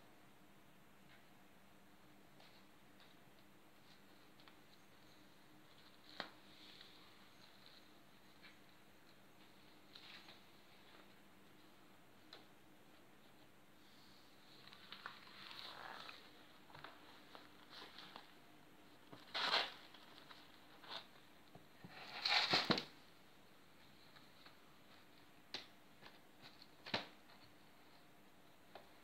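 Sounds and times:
soft rustles and pattering: 2.3 - 22.2.

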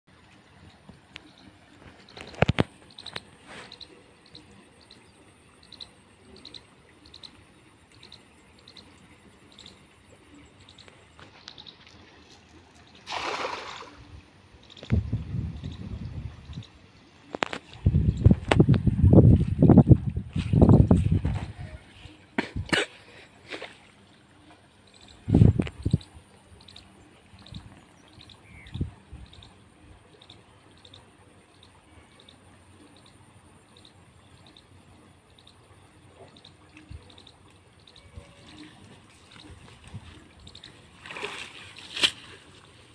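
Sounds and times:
faint bird chirps: 1.2 - 11.8, 24.8 - 39.6
net splashing into water: 13.0 - 14.0, 41.0 - 42.7.

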